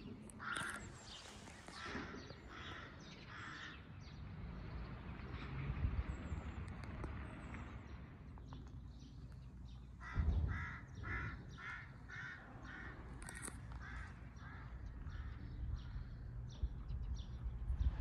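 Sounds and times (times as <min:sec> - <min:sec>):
crows cawing: 0:00.3 - 0:03.8, 0:10.0 - 0:16.3.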